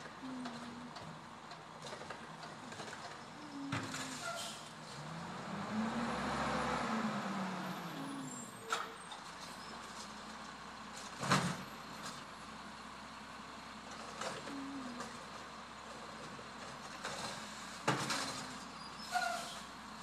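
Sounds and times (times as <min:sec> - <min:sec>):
garbage truck engine running: 0:00.0 - 0:20.0
short sharp truck sounds: 0:03.8 - 0:05.0, 0:07.8 - 0:10.1, 0:17.3 - 0:19.8.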